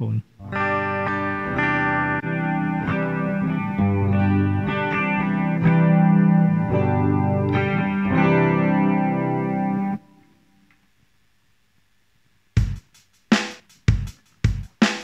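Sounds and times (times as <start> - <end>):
electric guitar strumming chords: 0.4 - 10.4.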